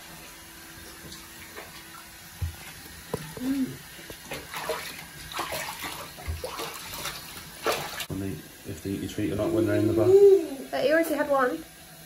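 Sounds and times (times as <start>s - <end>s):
water splashing in tub: 0.0s - 8.2s.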